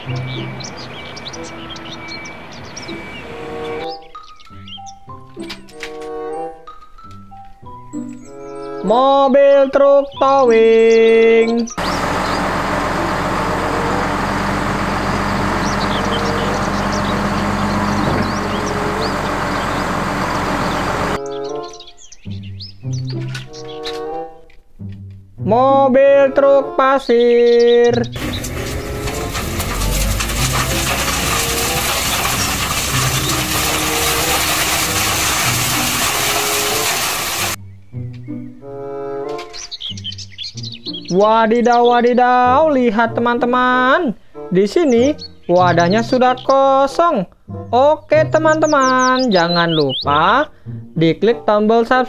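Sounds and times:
truck engine droning: 0.0 - 3.8, 11.8 - 21.2, 28.2 - 37.6
birds chirping: 0.0 - 5.2, 10.8 - 24.1, 27.0 - 42.2, 48.4 - 50.2
background music: 0.0 - 11.8, 20.6 - 52.0
gravel pouring and clattering: 11.8 - 21.2, 28.2 - 37.6.

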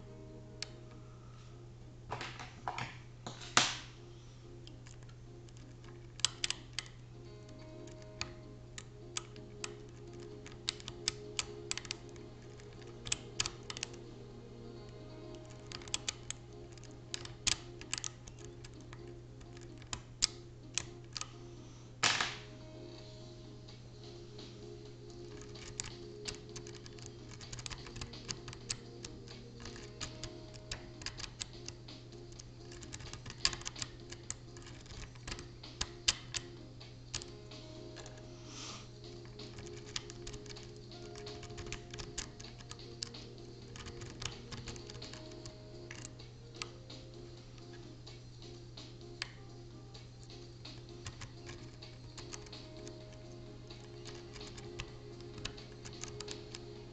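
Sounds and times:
lock pick clicking on lock pins: 4.6 - 14.0, 14.8 - 21.4, 25.2 - 38.2, 39.0 - 47.9, 50.2 - 56.9.

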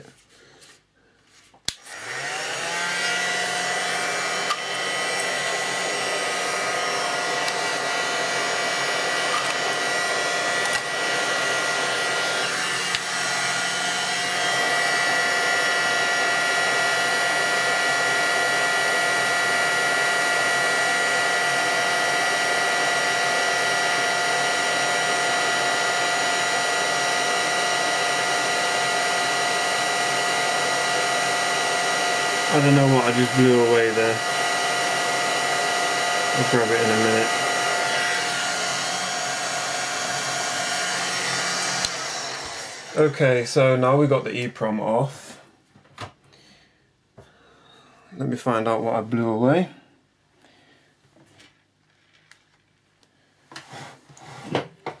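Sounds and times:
hot air gun blower whining: 1.7 - 44.2.

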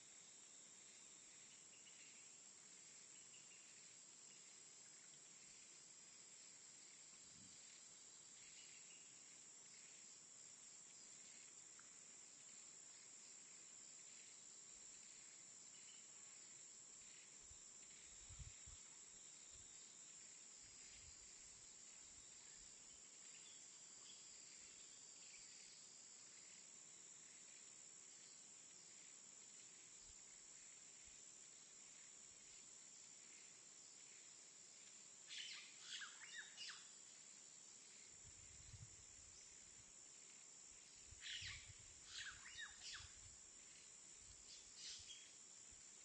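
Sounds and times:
bird chirps: 35.3 - 36.9, 41.2 - 43.2, 44.5 - 45.4
high-pitched insect drone: 35.3 - 45.8.

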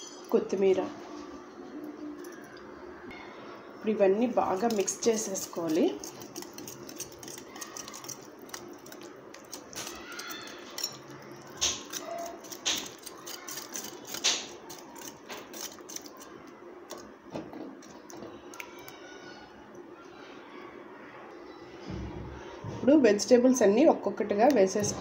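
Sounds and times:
whisk squelching in marinade: 4.4 - 17.1
whisk wires clicking on dish: 4.5 - 17.1.

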